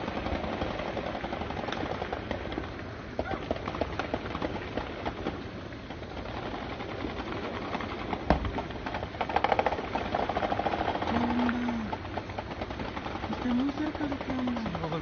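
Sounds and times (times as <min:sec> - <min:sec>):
rapid automatic fire burst: 0:00.0 - 0:15.0
distant gunfire: 0:06.2 - 0:14.8.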